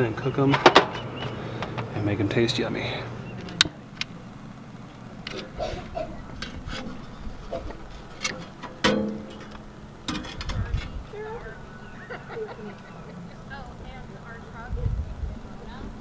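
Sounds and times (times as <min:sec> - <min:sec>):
metal clanks on grill grate: 0:05.3 - 0:10.9.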